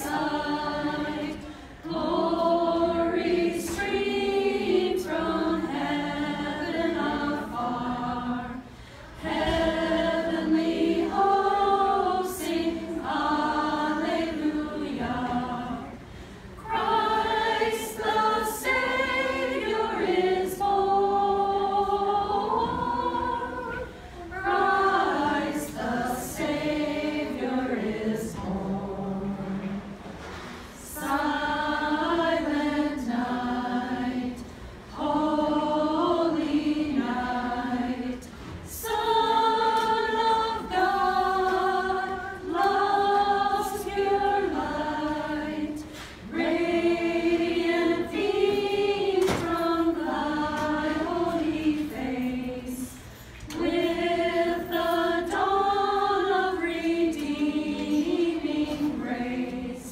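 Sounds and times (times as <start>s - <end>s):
women singing unaccompanied: 0.0s - 8.6s, 9.2s - 16.0s, 16.6s - 29.9s, 30.8s - 59.9s.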